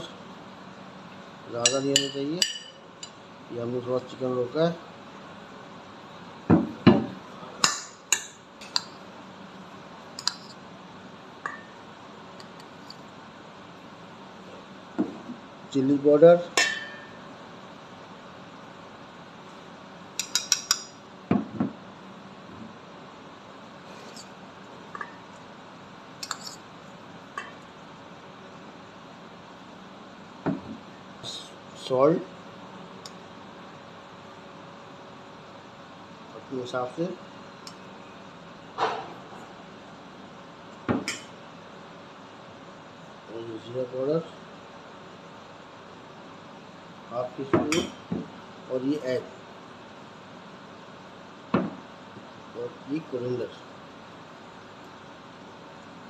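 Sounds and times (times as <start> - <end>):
steady background hiss: 0.0 - 56.0
metal spoon clinking on dishes: 1.6 - 3.2, 20.2 - 21.0, 26.2 - 26.6.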